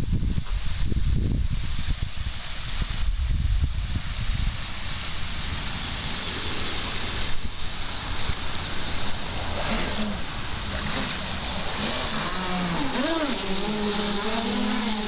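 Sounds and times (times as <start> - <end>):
steady hiss: 0.0 - 15.0
wind on microphone: 0.0 - 15.0
motors faint high whine: 5.8 - 15.0
water spraying: 8.9 - 15.0.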